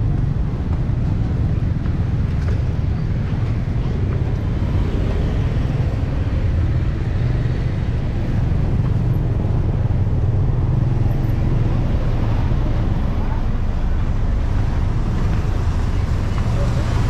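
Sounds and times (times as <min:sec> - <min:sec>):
street traffic rumble: 0:00.0 - 0:17.0.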